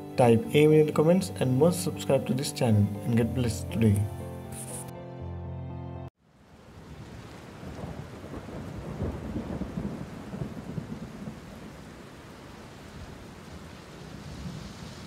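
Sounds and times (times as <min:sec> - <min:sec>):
steady rain: 0:06.2 - 0:15.0
rolling thunder: 0:07.6 - 0:11.8.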